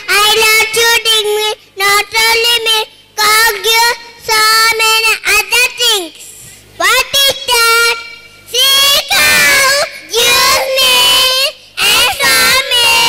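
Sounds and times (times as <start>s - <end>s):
girl singing into microphone: 8.6s - 13.0s.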